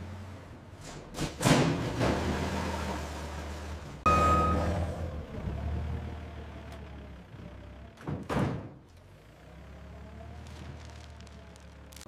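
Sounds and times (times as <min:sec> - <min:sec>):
forklift engine humming: 0:02.3 - 0:08.1
heavy thunk of pallet set down: 0:08.0 - 0:08.8.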